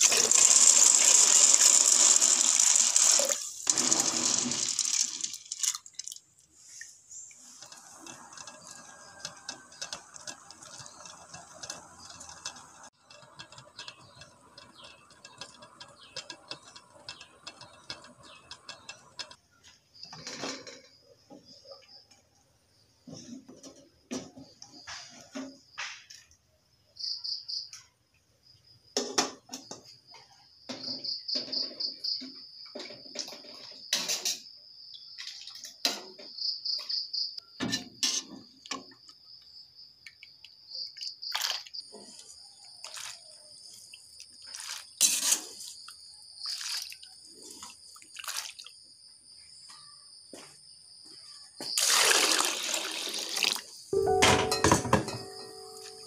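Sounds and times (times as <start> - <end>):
water splashing in pot: 0.0 - 13.4, 42.8 - 48.8, 51.7 - 53.8
utensils clinking against metal pot: 7.5 - 19.4, 54.0 - 56.0
crickets trilling: 30.1 - 54.2.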